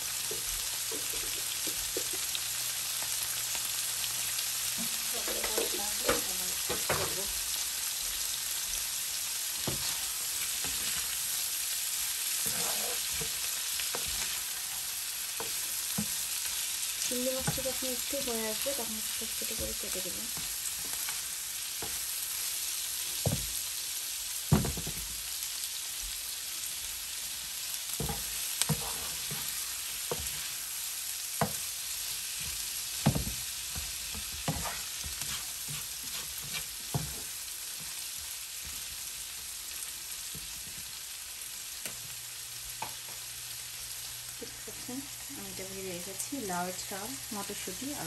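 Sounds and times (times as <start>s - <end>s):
food sizzling in oil: 0.0s - 48.0s
spatula knocking and scraping pan: 4.8s - 7.4s, 9.6s - 11.4s, 12.2s - 16.6s, 17.2s - 22.2s, 23.2s - 23.6s, 24.5s - 25.1s, 27.9s - 30.7s, 31.4s - 38.0s.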